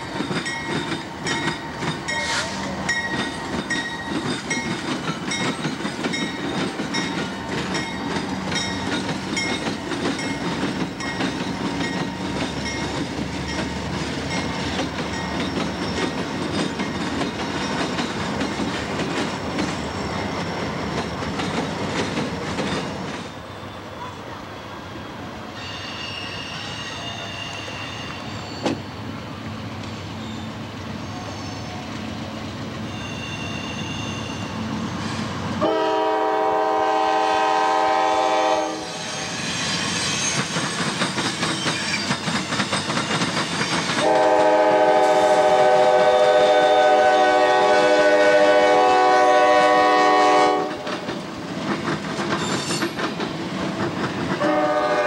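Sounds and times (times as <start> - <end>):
freight train wheels rumbling: 0.0 - 55.0
high wheel squeal: 23.3 - 29.0, 29.9 - 32.1, 32.8 - 35.4, 38.7 - 44.0, 52.4 - 53.0
locomotive horn: 35.6 - 39.1, 44.0 - 50.9, 54.4 - 55.0.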